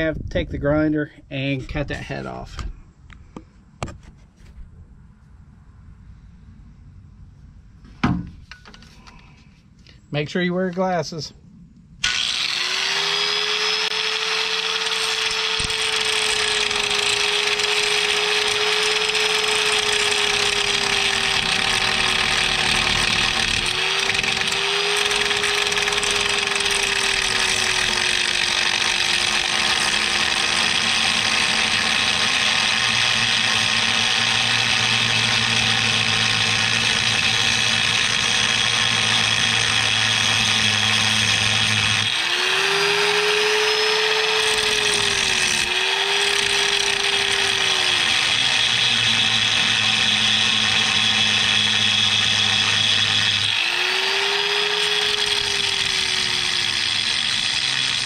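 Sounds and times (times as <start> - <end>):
angle grinder grinding bolt: 12.0 - 58.0.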